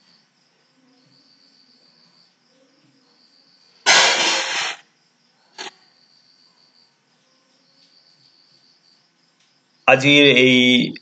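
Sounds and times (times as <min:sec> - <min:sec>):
crickets chirping faintly: 0:00.0 - 0:11.0
short burst of noise: 0:03.9 - 0:04.8.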